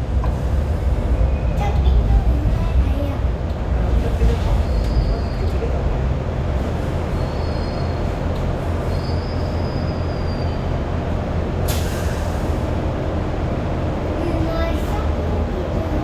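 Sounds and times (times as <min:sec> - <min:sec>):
light rail car rumble: 0:00.0 - 0:16.0
faint high squeals: 0:07.1 - 0:08.1, 0:08.8 - 0:10.7.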